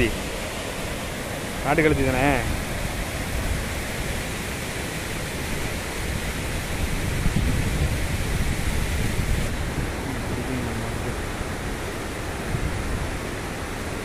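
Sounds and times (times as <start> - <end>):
river water rushing: 0.0 - 14.0
wind on microphone: 0.0 - 14.0.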